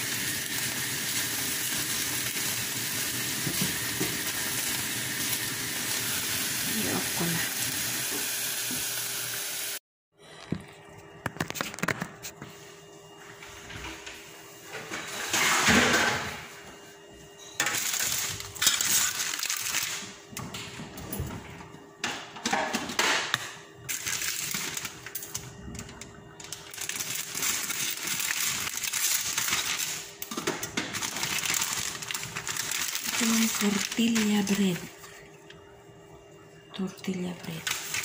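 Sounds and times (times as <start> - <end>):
plastic packaging crinkling: 17.6 - 20.1, 23.9 - 34.9, 37.6 - 38.0.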